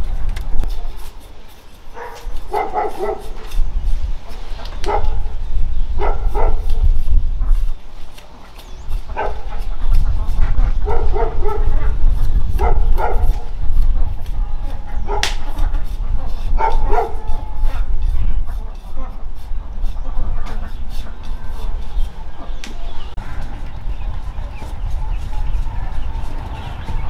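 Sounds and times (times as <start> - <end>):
dog barking: 1.9 - 3.5, 4.8 - 5.4, 6.0 - 6.8, 9.1 - 9.8, 10.7 - 13.6, 14.9 - 15.5, 16.2 - 17.9
steady low rumble: 1.9 - 27.0.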